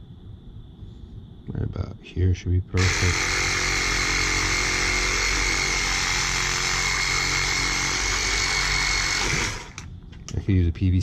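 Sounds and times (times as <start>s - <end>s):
power tool cutting plastic: 2.8s - 9.9s.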